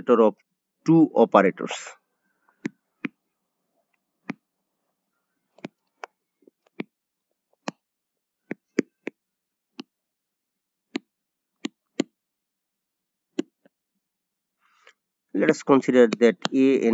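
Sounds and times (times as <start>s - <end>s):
stylus tapping on writing surface: 8.5s - 9.2s.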